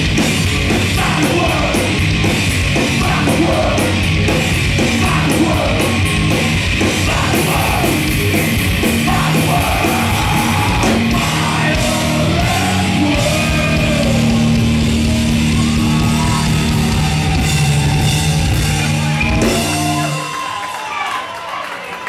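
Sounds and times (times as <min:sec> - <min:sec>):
live heavy metal band: 0:00.0 - 0:20.6
crowd noise: 0:00.0 - 0:22.0
shouted vocals: 0:04.8 - 0:06.1, 0:06.8 - 0:08.2, 0:08.8 - 0:21.5.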